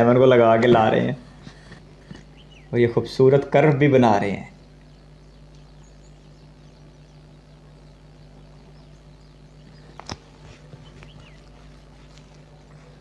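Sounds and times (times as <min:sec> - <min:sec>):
faint low hum: 0:00.0 - 0:13.0
bird-like chirps: 0:01.8 - 0:03.1, 0:04.5 - 0:13.0.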